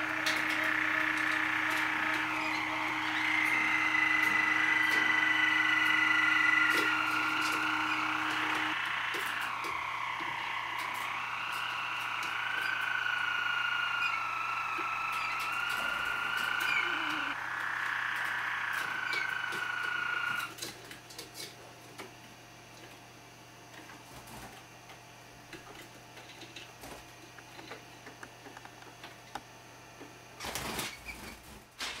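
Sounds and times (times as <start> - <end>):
canary singing rolling song: 0.0 - 20.6.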